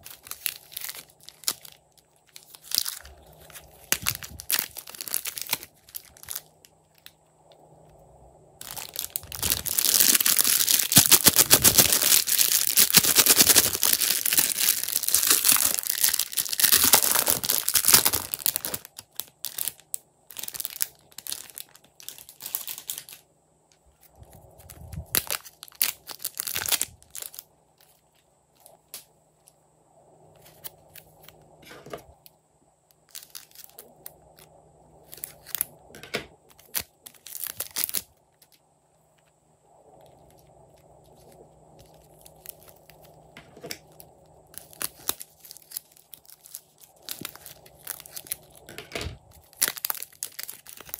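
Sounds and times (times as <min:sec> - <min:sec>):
plastic bags crinkling: 0:00.0 - 0:07.1, 0:08.6 - 0:23.2, 0:24.1 - 0:28.0, 0:33.1 - 0:34.4, 0:35.1 - 0:38.5, 0:41.0 - 0:50.9
scissors cutting plastic bag: 0:08.6 - 0:19.8, 0:44.6 - 0:50.9.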